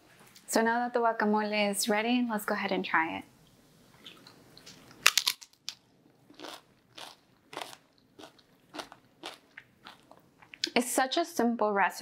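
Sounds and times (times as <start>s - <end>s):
chewing crunches: 4.0s - 10.7s
chip bitten with loud crunch: 4.6s - 10.6s.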